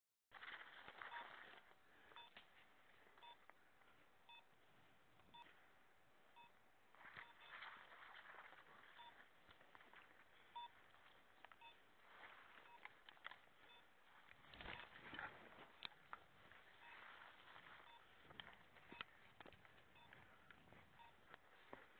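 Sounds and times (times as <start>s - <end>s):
faint short electronic beeps: 6.4s - 9.3s, 16.8s - 18.2s, 21.0s - 21.3s
brush rustling: 6.9s - 21.9s.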